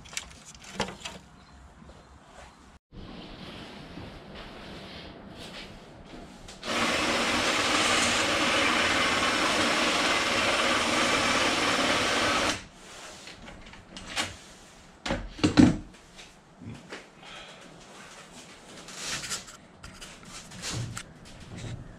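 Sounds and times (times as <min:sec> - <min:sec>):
cordless drill running: 0:06.6 - 0:12.6.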